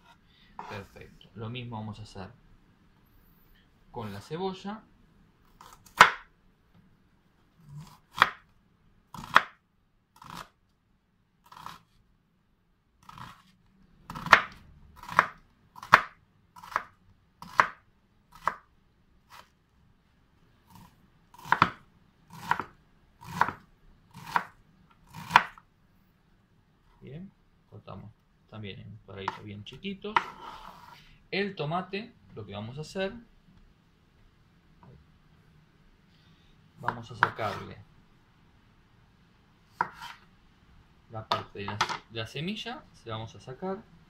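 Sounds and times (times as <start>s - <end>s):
knife chopping on wooden board: 5.6s - 6.3s, 7.8s - 8.4s, 9.2s - 9.6s, 14.1s - 18.6s, 21.4s - 25.6s, 30.1s - 30.5s, 36.9s - 37.6s, 39.8s - 40.2s.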